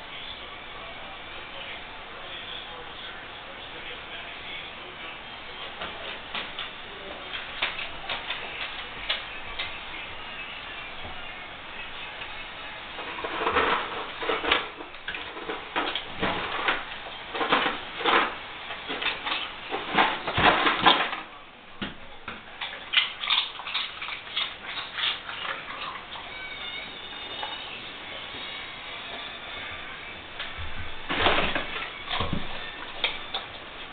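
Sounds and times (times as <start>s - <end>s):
dog rummaging in trash: 13.0s - 21.3s, 30.4s - 33.9s.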